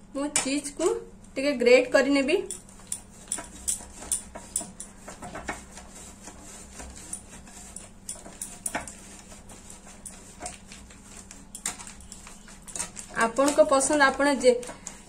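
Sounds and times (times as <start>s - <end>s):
cheese grating on metal grater: 2.5s - 15.0s.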